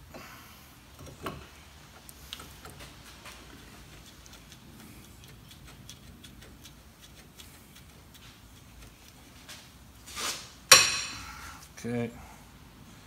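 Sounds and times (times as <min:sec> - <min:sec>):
faint even ticking: 0:03.5 - 0:09.2
metallic scrape of brake pad: 0:09.5 - 0:11.4.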